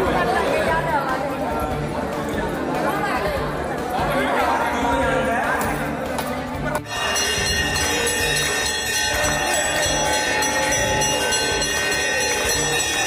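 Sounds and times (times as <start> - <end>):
brass bells ringing: 6.9 - 13.0.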